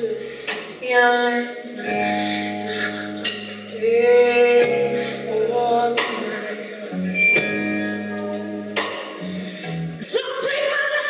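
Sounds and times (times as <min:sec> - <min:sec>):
woman singing: 0:00.0 - 0:08.4, 0:10.0 - 0:11.0
bass: 0:00.0 - 0:10.2
keyboard chords: 0:01.8 - 0:10.0.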